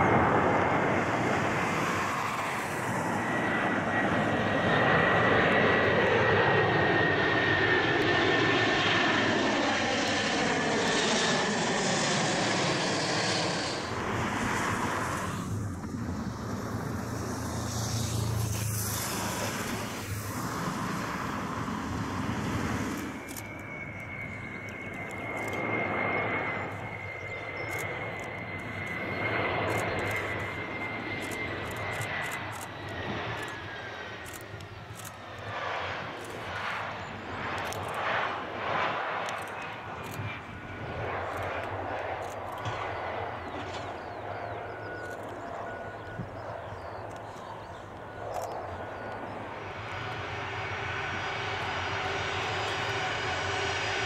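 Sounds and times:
jet engine roar: 0.0 - 54.0
high engine whine falling in pitch: 38.8 - 54.0.

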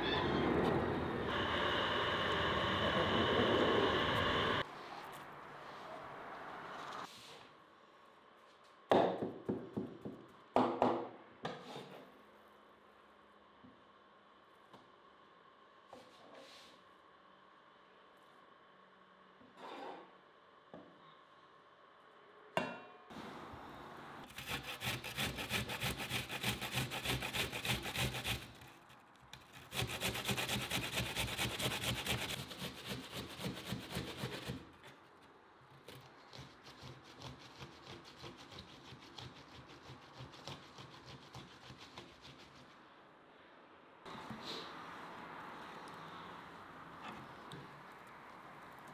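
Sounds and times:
onion grated on metal grater: 24.3 - 28.7, 29.5 - 34.7.

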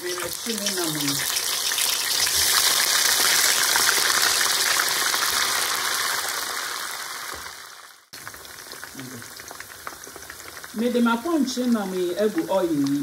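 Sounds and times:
meat sizzling in oil: 0.0 - 13.0.

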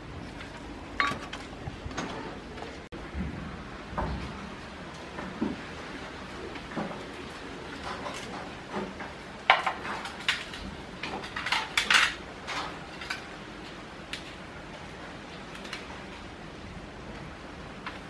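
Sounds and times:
metal tray clattering on tiles: 9.5 - 13.3.

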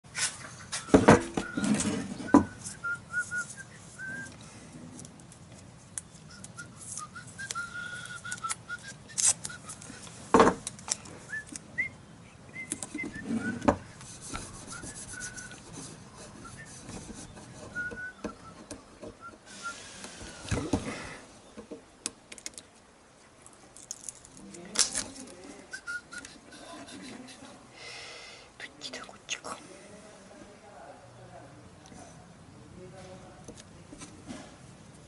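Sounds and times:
hand rubbing tape: 0.1 - 11.6, 12.6 - 20.4
whistled melody: 0.7 - 4.4, 6.3 - 10.0, 14.6 - 15.6, 16.4 - 19.8, 25.7 - 26.4
masking tape ripping: 6.8 - 9.8.

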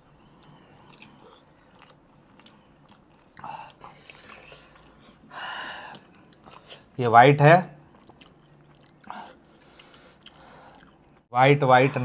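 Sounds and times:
biting and chewing food: 7.8 - 11.3.

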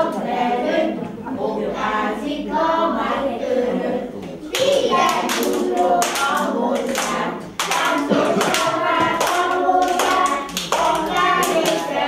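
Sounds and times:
children singing: 0.0 - 12.0
children clapping: 4.5 - 12.0.

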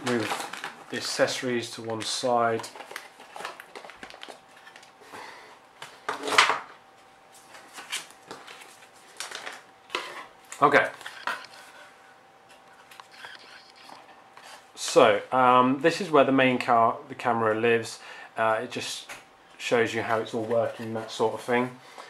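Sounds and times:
packaging rustling: 0.0 - 4.9, 7.8 - 9.7.

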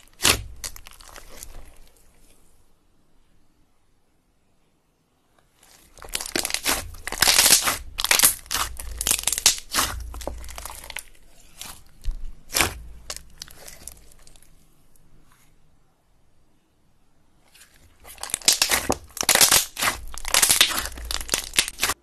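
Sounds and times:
slime crackling when squeezed: 0.0 - 2.0, 5.6 - 14.5, 17.6 - 22.0.

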